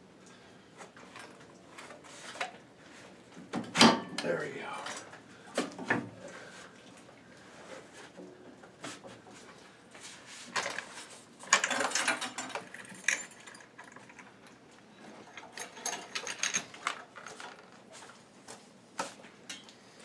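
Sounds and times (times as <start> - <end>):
chain jangling: 11.5 - 14.2.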